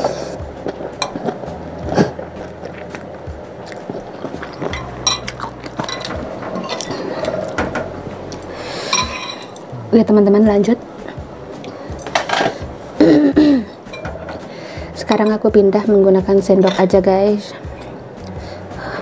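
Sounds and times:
wet chewing: 0:00.0 - 0:07.6
spoon clinking on ceramic bowl: 0:04.7 - 0:07.0.

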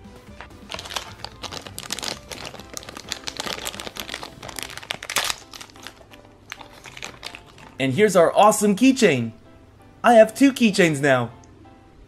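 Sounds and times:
plastic bag crinkling: 0:00.4 - 0:07.8.

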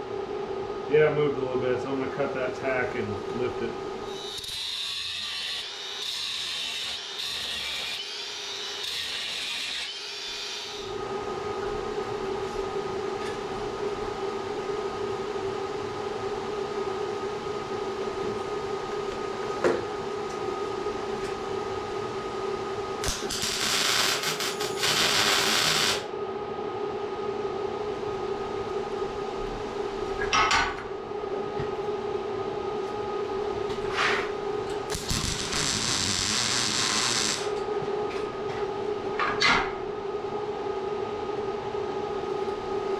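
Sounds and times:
steady hum: 0:00.0 - 0:04.2, 0:10.8 - 0:42.9
arc welder buzzing: 0:04.0 - 0:11.0, 0:23.0 - 0:26.1, 0:34.6 - 0:37.7
angle grinder cutting: 0:04.1 - 0:10.8, 0:34.9 - 0:37.5.

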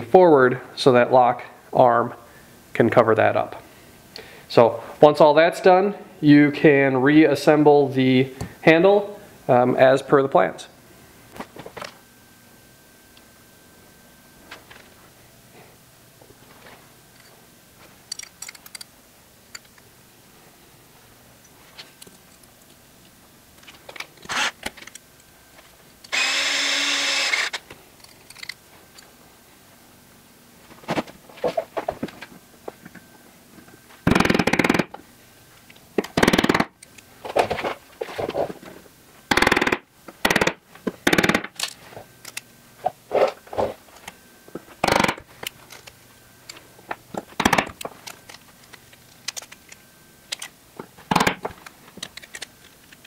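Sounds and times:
metal parts clicking and tapping: 0:18.0 - 0:18.9, 0:28.0 - 0:29.1, 0:47.2 - 0:50.5, 0:51.1 - 0:53.0.

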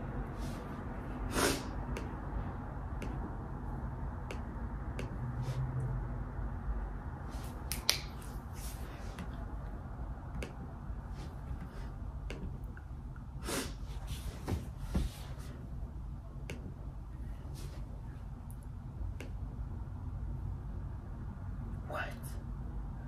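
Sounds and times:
low room hum: 0:00.0 - 0:23.0
hands clicking and tapping: 0:07.7 - 0:08.2.

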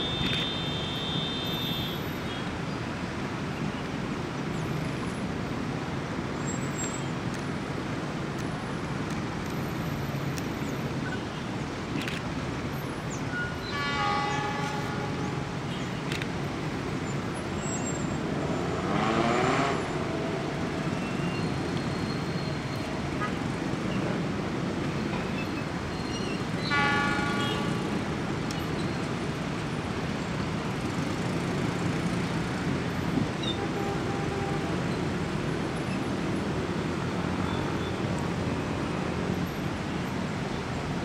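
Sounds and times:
car horn toot: 0:00.0 - 0:02.4, 0:26.7 - 0:28.0
street traffic noise: 0:00.0 - 0:41.0
engine revving: 0:18.5 - 0:20.0.

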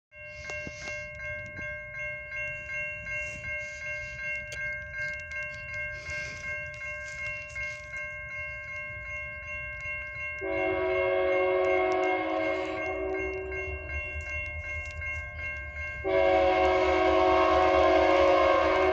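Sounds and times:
railroad crossing bell ringing: 0:00.1 - 0:18.9
locomotive horn chord: 0:10.4 - 0:13.8, 0:16.0 - 0:18.9.

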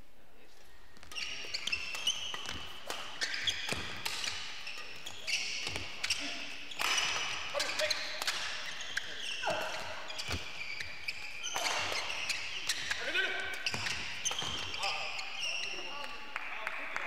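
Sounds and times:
shoes squeaking on court floor: 0:00.5 - 0:16.3
racket hitting shuttlecock: 0:01.0 - 0:10.6, 0:11.4 - 0:15.0.

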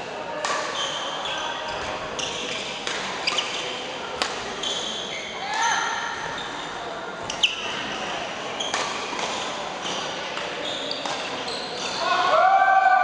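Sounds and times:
racket hitting shuttlecock: 0:00.4 - 0:00.8, 0:02.8 - 0:03.6, 0:04.2 - 0:04.6, 0:08.7 - 0:11.4
shoe squeaks on court floor: 0:00.7 - 0:03.8, 0:04.6 - 0:05.4, 0:06.2 - 0:12.1.

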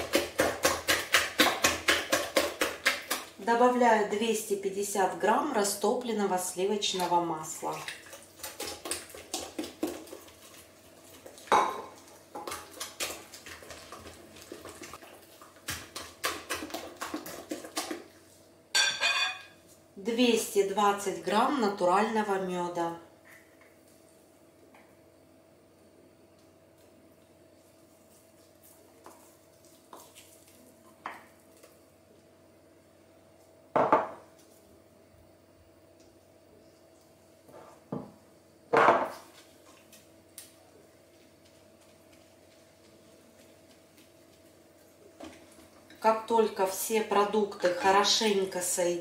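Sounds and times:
knock of hard kitchenware: 0:33.8 - 0:34.2, 0:38.7 - 0:39.1.

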